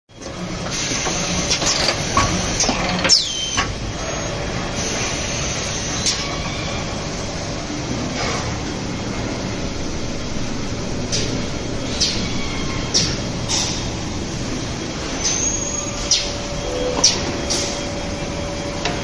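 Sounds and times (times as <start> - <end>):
falling whine: 8.6 - 19.0.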